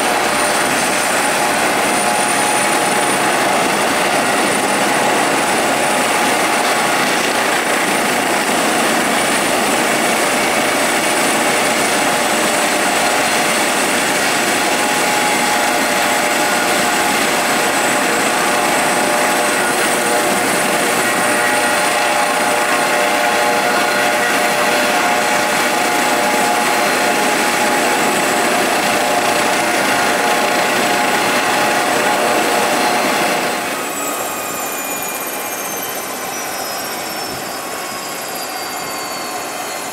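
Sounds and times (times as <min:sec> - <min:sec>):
helicopter flying close by: 0:00.0 - 0:21.6
helicopter rotor noise: 0:00.0 - 0:39.9
helicopter turbine whine: 0:00.0 - 0:39.9.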